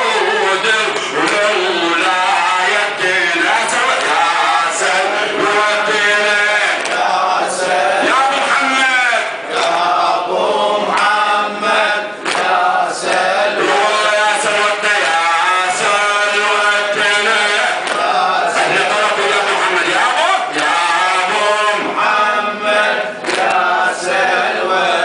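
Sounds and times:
man chanting into microphone: 0.0 - 23.1
group of men chanting: 0.0 - 25.0.

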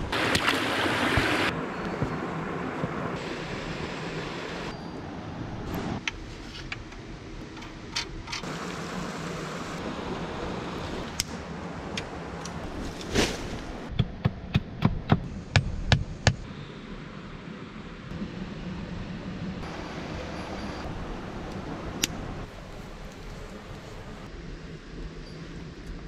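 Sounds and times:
hatchet pounding wooden stake: 13.9 - 16.4.

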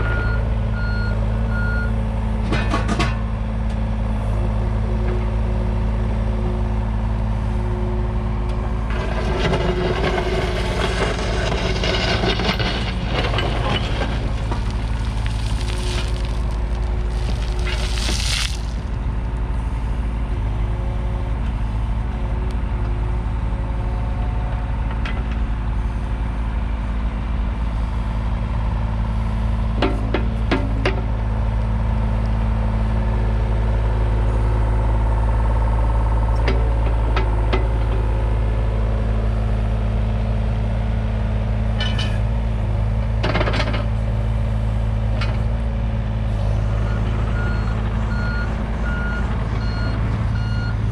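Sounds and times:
excavator diesel engine running: 0.0 - 50.9
bucket crunching and scraping soil: 9.6 - 19.2
dirt pouring out of bucket: 11.6 - 19.0.

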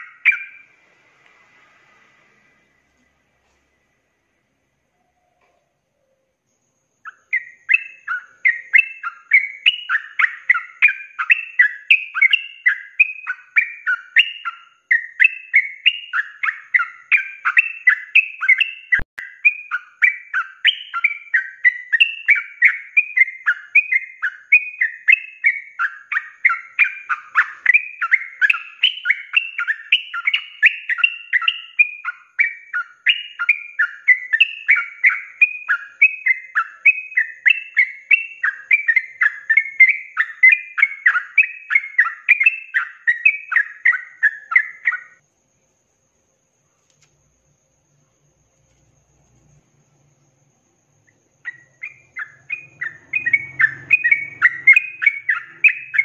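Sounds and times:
bulbul singing warbled notes: 51.1 - 56.0.

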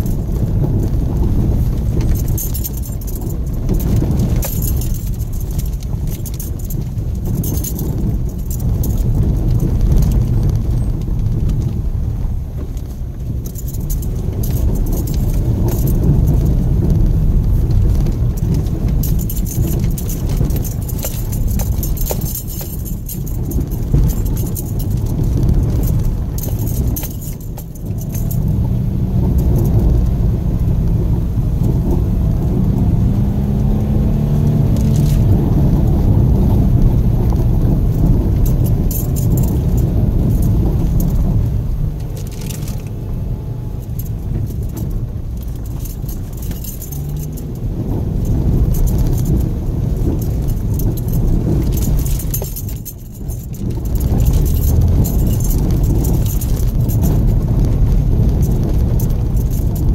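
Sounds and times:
car engine hum: 0.0 - 59.9
interior clinking and rattling: 0.0 - 59.9
tyres rumbling over gravel: 34.4 - 59.9.

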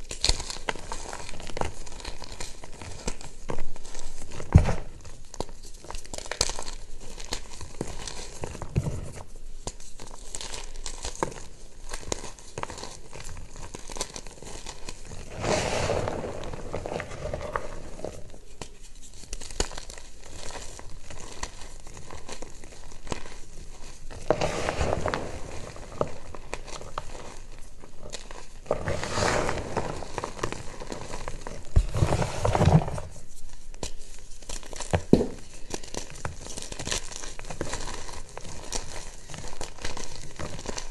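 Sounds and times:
powder pouring through fingers: 0.0 - 40.9.

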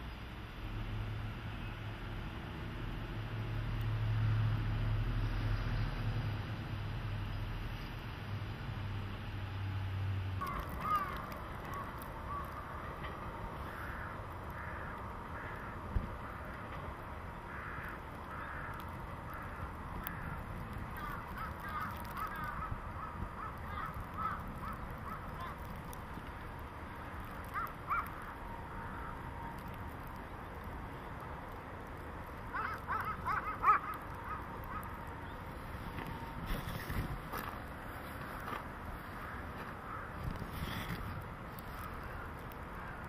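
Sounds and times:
crows cawing: 10.4 - 12.8, 13.6 - 16.6, 17.4 - 25.7, 27.3 - 29.2, 32.5 - 35.4, 39.0 - 40.9, 41.8 - 43.0.

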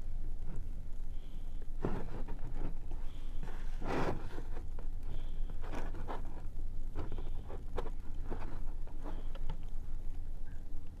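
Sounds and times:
wire strippers scraping and clicking: 5.5 - 10.6.

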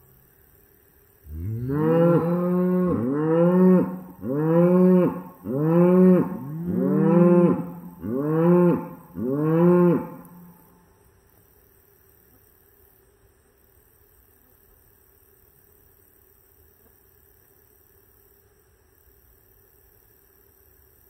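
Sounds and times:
cow mooing: 1.3 - 10.6.

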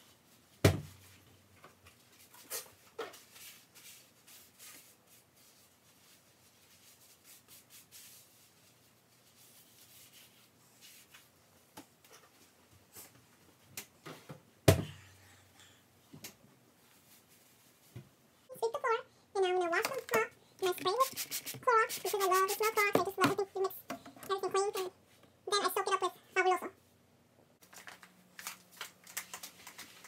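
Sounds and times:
rubbing and wiping kitchen surface: 1.8 - 13.7, 16.8 - 24.9.

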